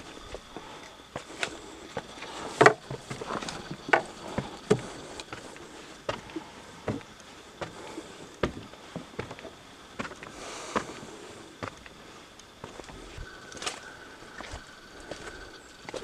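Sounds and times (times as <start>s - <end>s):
footsteps on wooden stairs: 2.0s - 5.5s, 8.4s - 9.4s.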